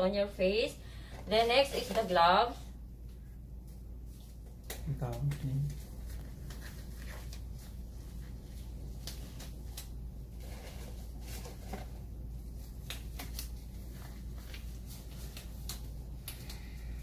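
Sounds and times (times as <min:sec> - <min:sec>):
steady low hum: 0:00.0 - 0:17.0
gloves snapping and rustling: 0:08.6 - 0:10.2, 0:12.6 - 0:16.6.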